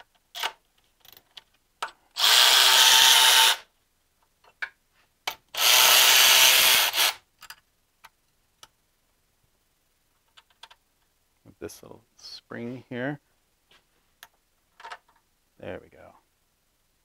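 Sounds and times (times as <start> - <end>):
electric ratchet spinning: 2.2 - 3.7, 5.6 - 7.2
small clicks of tool and bolts: 7.4 - 8.8, 10.3 - 10.8.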